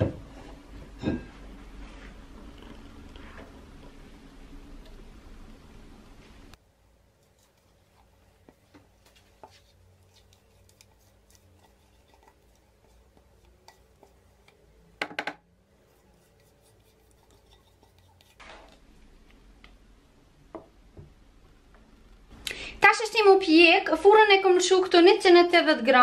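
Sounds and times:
spatula spreading batter: 7.1 - 15.0, 15.7 - 18.5.

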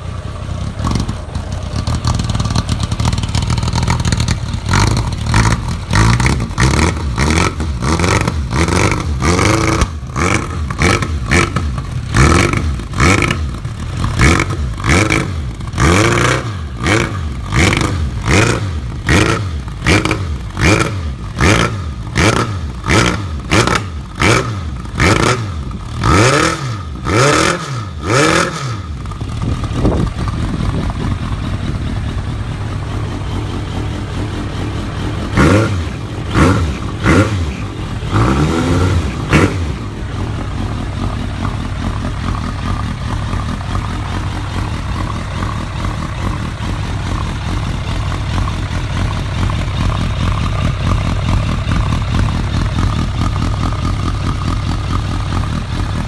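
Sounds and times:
motorcycle engine revving and idling: 0.0 - 56.0.

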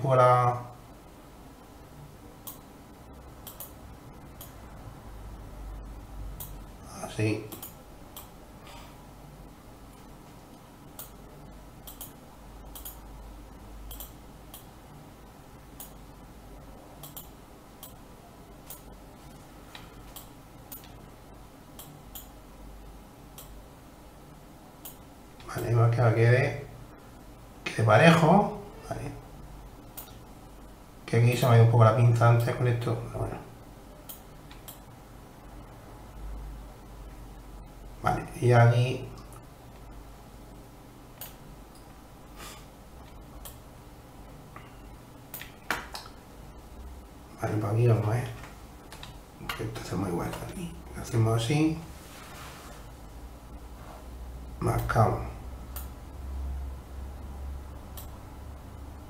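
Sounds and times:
faint low hum: 0.0 - 59.0
computer mouse clicking: 2.4 - 2.6, 3.4 - 3.8, 4.4 - 4.6, 7.5 - 8.4, 10.5 - 11.2, 11.8 - 13.0, 13.9 - 14.7, 17.0 - 18.0, 18.6 - 21.0, 21.7 - 22.4, 24.8 - 25.5, 29.9 - 30.2, 34.0 - 34.9, 41.2 - 41.9, 43.0 - 43.6, 48.4 - 49.6, 57.9 - 58.2
mouse and keyboard clicks: 11.8 - 13.0, 13.9 - 14.7.

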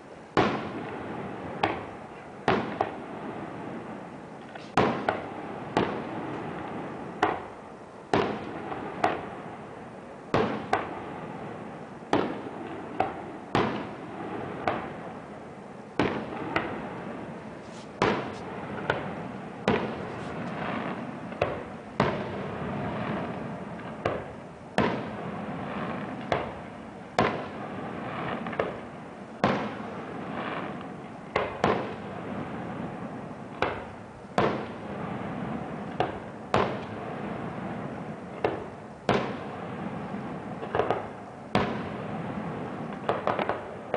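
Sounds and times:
firework crackling: 0.0 - 43.9
firework shells bursting: 16.0 - 37.6, 38.3 - 43.9.

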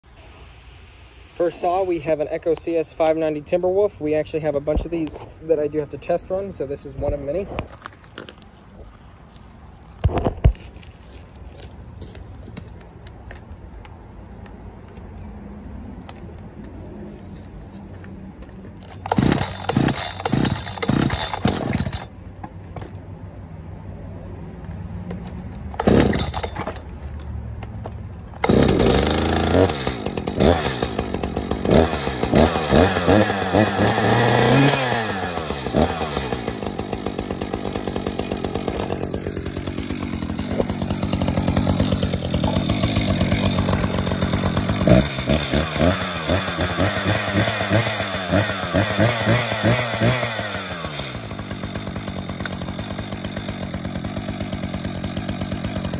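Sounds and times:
chainsaw starter cord pulls: 18.8 - 23.0, 25.1 - 27.4, 28.3 - 55.9
chainsaw engine revving and idling: 19.0 - 22.2, 25.7 - 27.3, 28.3 - 55.9.

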